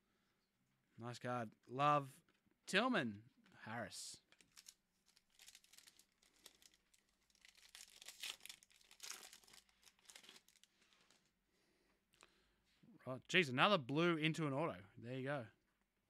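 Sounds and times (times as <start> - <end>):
foil wrapper crinkling and tearing: 4.3 - 11.3.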